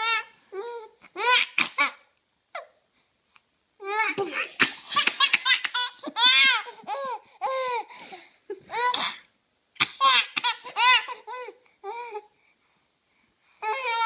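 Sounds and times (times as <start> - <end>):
baby laughing: 3.8 - 7.8, 9.8 - 11.3.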